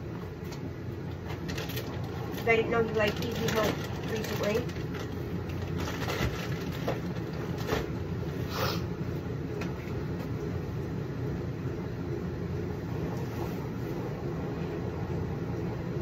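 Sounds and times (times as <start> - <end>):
machine running low rumble: 0.0 - 16.0.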